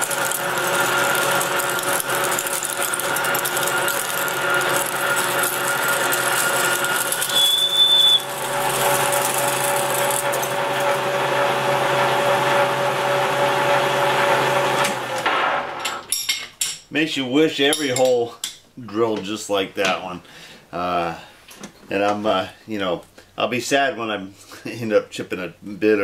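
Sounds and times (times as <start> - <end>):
metal lathe humming: 0.0 - 15.2
drill squealing high-pitched: 0.1 - 10.5.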